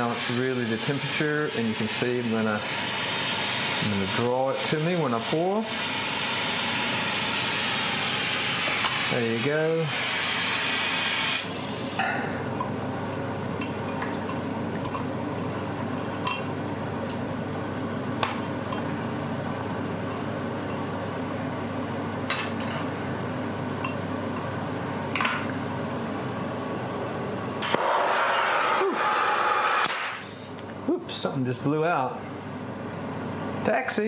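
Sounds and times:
gas torch hissing: 0:00.0 - 0:12.0, 0:27.6 - 0:30.6.

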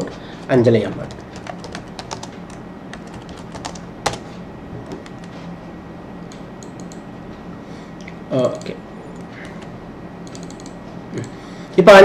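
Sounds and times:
keyboard typing clicks: 0:06.3 - 0:07.1, 0:08.6 - 0:11.4.

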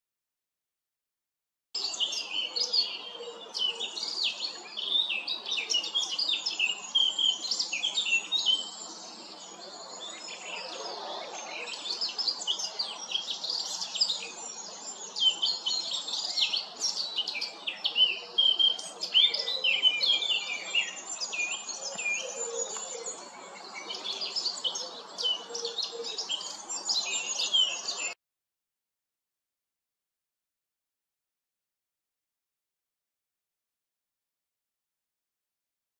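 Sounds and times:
bird warbling song: 0:01.8 - 0:28.2.

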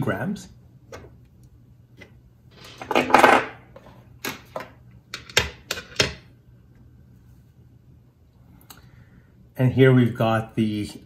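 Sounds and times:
clattering rustle of small parts: 0:02.5 - 0:06.0.

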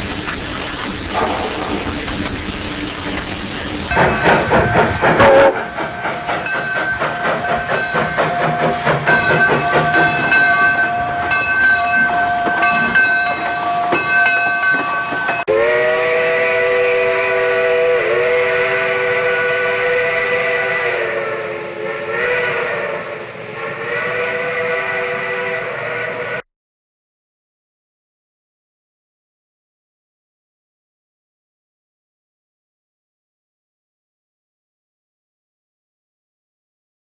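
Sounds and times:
steam whistle chord: 0:01.1 - 0:02.5, 0:03.9 - 0:26.4
steam locomotive chuffing: 0:01.1 - 0:26.4.

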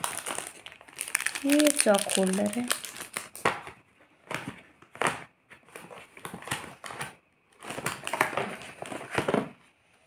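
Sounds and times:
rummaging in plastic box: 0:04.2 - 0:09.6.

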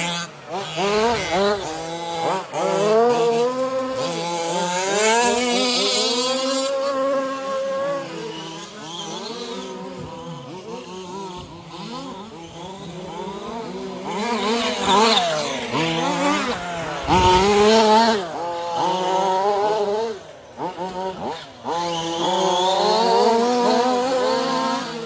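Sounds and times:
small petrol engines revving: 0:00.0 - 0:25.0.

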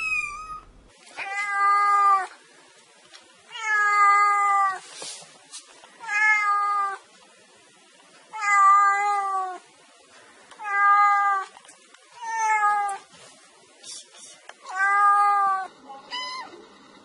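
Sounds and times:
cat meowing: 0:00.0 - 0:02.3, 0:03.5 - 0:04.8, 0:06.0 - 0:07.0, 0:08.3 - 0:09.6, 0:10.6 - 0:11.5, 0:12.2 - 0:13.0, 0:14.6 - 0:16.5.

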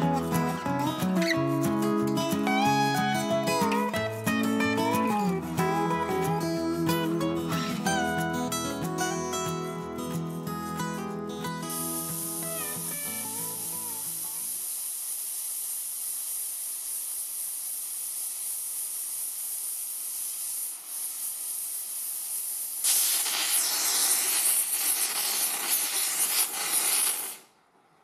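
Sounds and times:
gas torch flame hissing: 0:11.5 - 0:27.6.

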